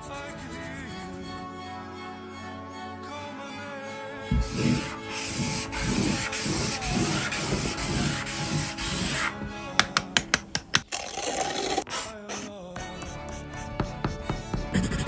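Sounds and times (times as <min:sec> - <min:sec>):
marker scribbling on paper: 0:04.3 - 0:09.4, 0:11.6 - 0:15.0.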